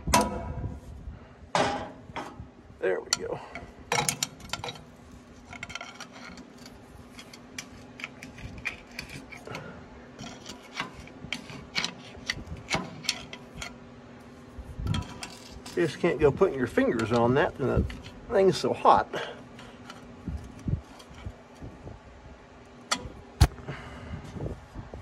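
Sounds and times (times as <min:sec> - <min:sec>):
faint steady hum: 0:00.0 - 0:25.0
hand tools clinking on metal: 0:03.1 - 0:04.9.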